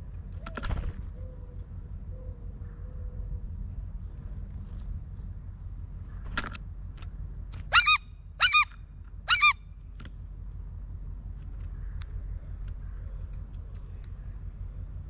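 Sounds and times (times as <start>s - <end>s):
blue jay calling: 7.7s - 9.6s.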